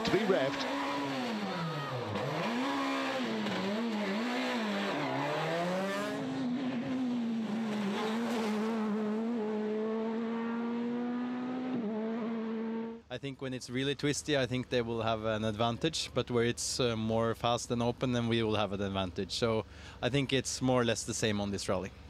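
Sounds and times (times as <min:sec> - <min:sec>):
rally car engine revving: 0:00.0 - 0:13.0
second rally car engine accelerating: 0:00.0 - 0:13.0.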